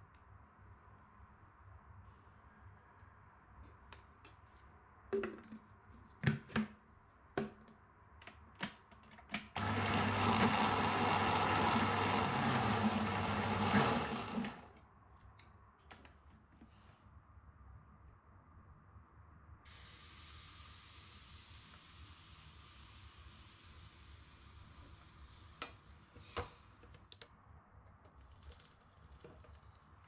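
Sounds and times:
blender running: 9.6s - 14.7s.

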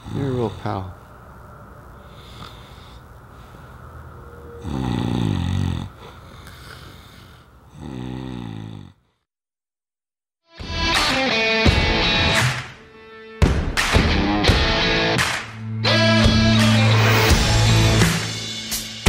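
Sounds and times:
man snoring: 0.0s - 0.9s, 4.6s - 9.2s.

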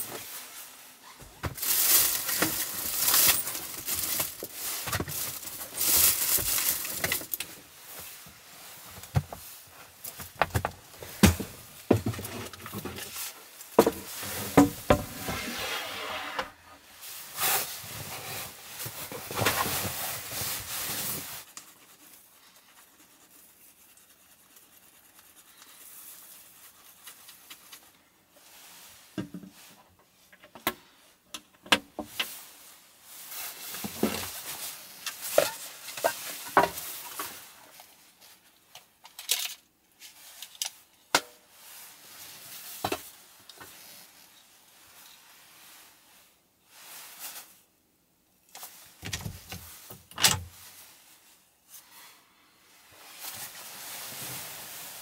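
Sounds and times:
fabric rustling and rubbing: 0.0s - 10.2s, 10.8s - 29.2s, 50.5s - 55.0s.

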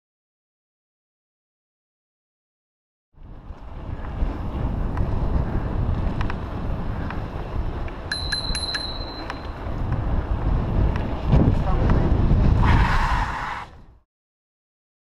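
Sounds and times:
wind rumble on microphone: 3.2s - 14.0s
bicycle bell dings: 8.1s - 9.6s.

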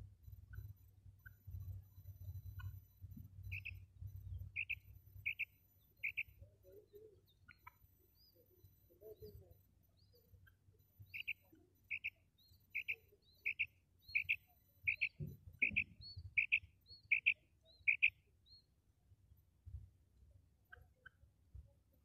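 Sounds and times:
quail calling: 3.5s - 3.8s, 4.6s - 6.4s, 10.4s - 18.2s.

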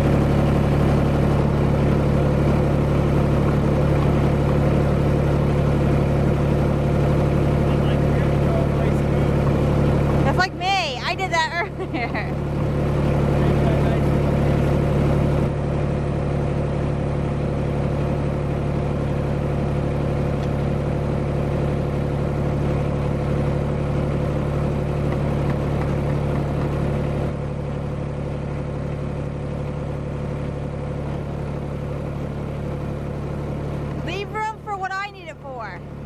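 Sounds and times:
tractor engine idling: 0.0s - 36.0s.

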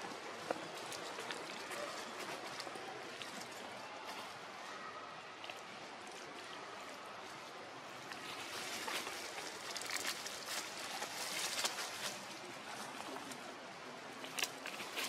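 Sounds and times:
steady outdoor hiss: 0.0s - 15.0s
dry leaves rustling: 6.4s - 13.4s.

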